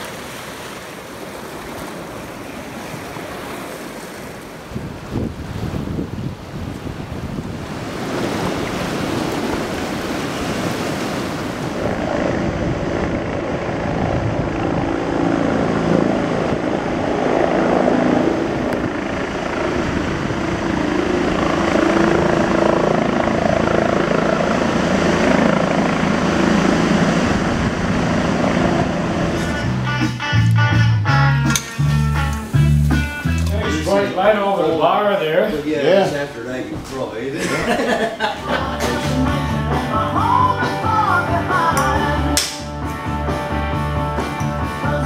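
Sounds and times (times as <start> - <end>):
river rapids rushing: 0.0 - 4.8
helicopter rotor and engine: 11.5 - 29.6.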